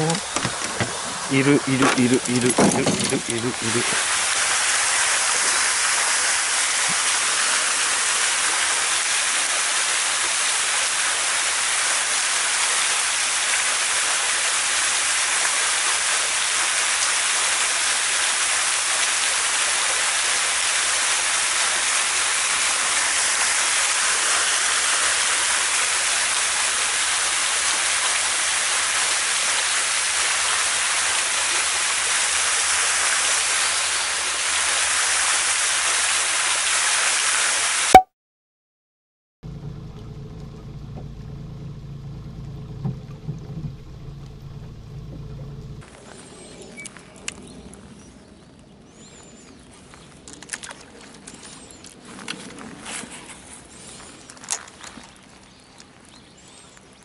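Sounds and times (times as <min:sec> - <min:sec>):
small waterfall rushing: 0:00.0 - 0:38.0.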